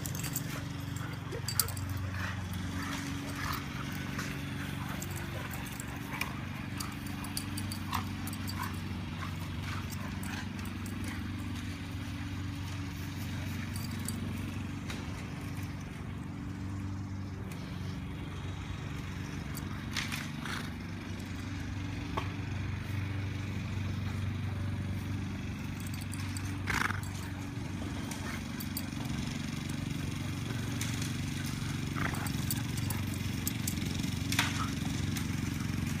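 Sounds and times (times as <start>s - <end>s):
steady low hum: 0.0s - 34.7s.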